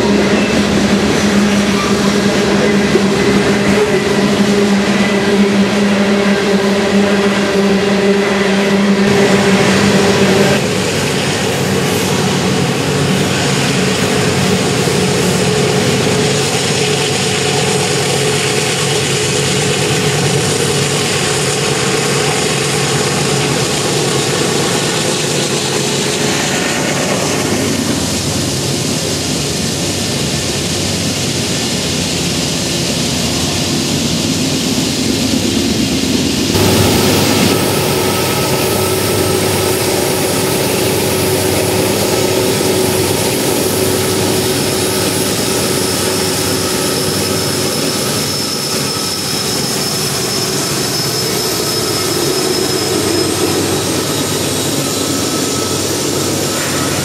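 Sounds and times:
diesel locomotive engine under load: 0.0s - 57.0s
rumble of train cars on rails: 0.0s - 57.0s.

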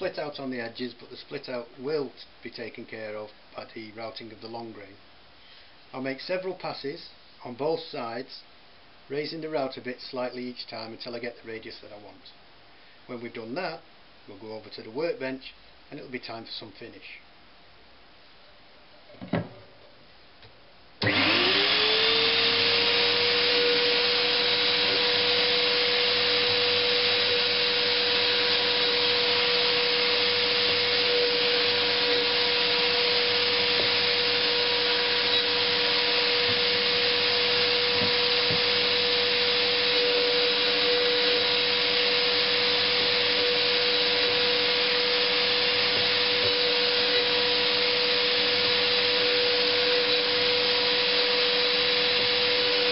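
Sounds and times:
router motor whining: 21.0s - 52.9s.

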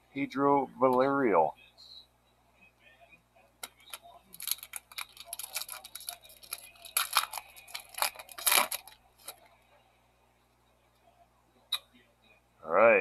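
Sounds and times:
foil wrapper crinkling and tearing: 3.7s - 9.4s.

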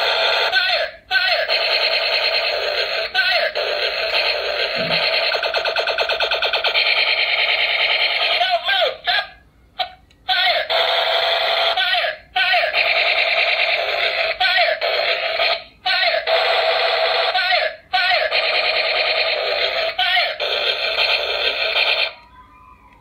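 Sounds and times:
toy gun warbling tone: 4.3s - 6.9s.

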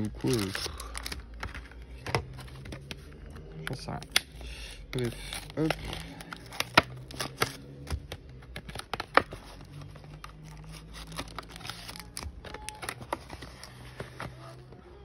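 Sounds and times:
foil packs rustling: 0.0s - 1.4s
plastic blister packaging crinkling: 0.0s - 2.8s, 5.0s - 14.7s.

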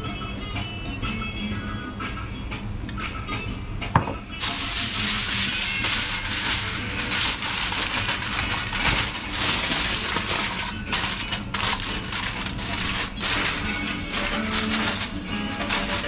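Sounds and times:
aluminium foil crinkling: 4.4s - 16.0s.

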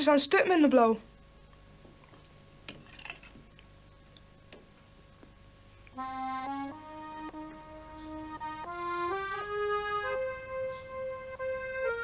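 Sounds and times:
accordion music: 6.0s - 12.0s.

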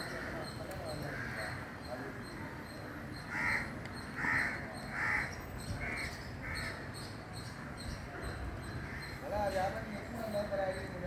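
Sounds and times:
crow cawing: 0.0s - 6.9s, 8.7s - 9.3s.

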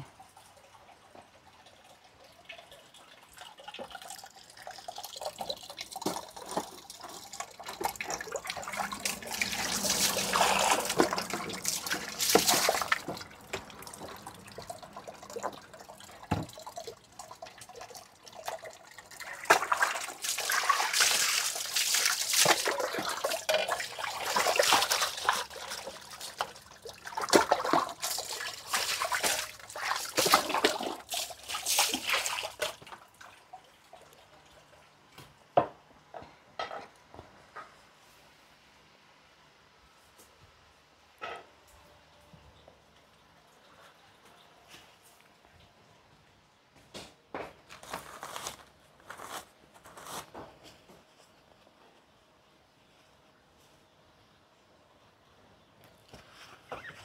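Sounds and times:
pot bubbling: 1.9s - 34.4s.

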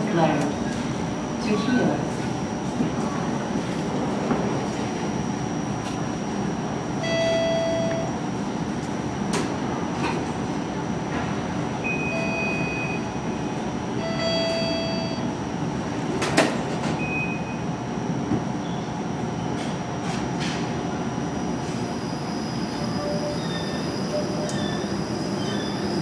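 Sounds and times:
streetcar electrical hum: 0.0s - 26.0s.

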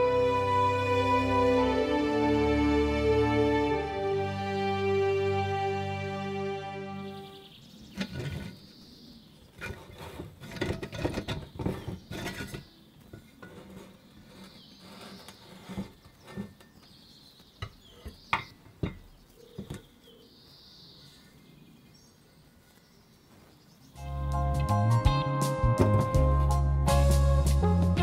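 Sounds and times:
metal and glass knocks: 17.6s - 19.8s.

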